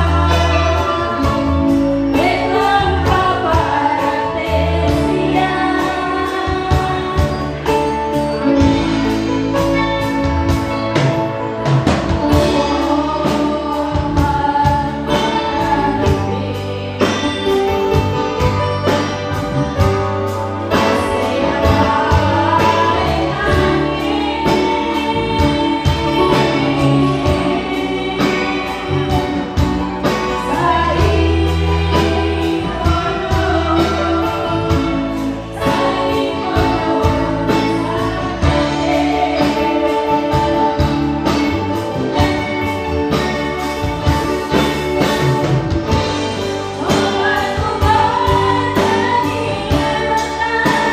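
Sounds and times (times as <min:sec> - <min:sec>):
women singing together: 0:00.0 - 0:07.8, 0:12.3 - 0:18.0, 0:20.7 - 0:41.6, 0:46.4 - 0:50.9
live band keyboard and drums: 0:00.0 - 0:50.9.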